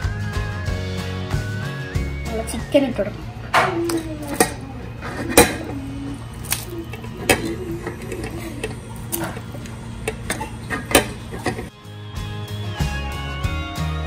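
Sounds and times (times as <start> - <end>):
steady low hum: 2.0 - 11.8.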